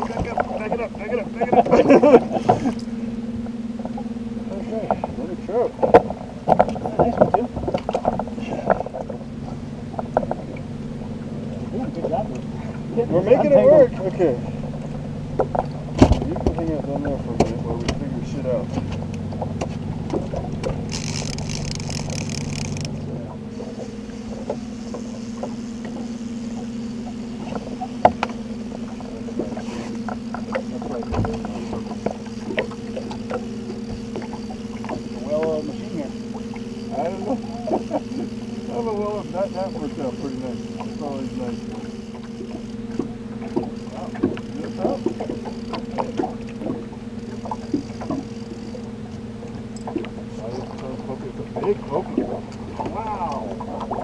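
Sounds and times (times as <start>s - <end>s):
boat motor humming: 0.0s - 54.0s
knocks on boat: 14.7s - 18.1s, 30.1s - 32.7s.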